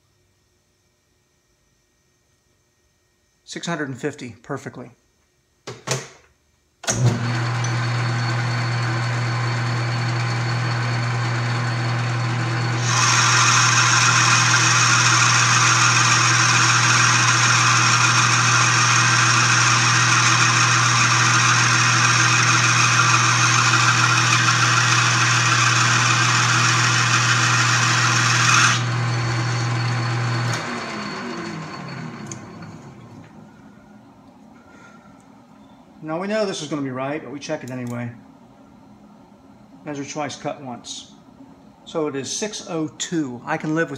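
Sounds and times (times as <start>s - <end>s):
spindle winding down: 6.9s - 33.4s
lathe motor hum: 7.1s - 33.5s.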